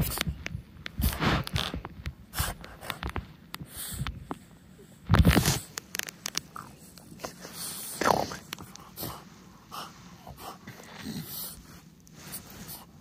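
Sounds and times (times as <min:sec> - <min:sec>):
dog snuffling and huffing: 0:00.9 - 0:04.1, 0:06.4 - 0:13.0
blanket rustling: 0:09.3 - 0:13.0.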